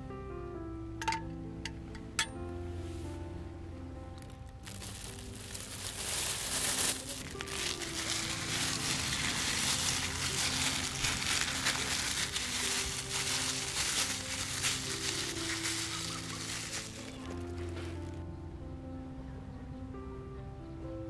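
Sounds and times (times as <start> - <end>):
soft background music: 0.0 - 21.0
plastic bag crinkling: 4.2 - 18.2
hands kneading chicken in marinade: 4.6 - 18.1.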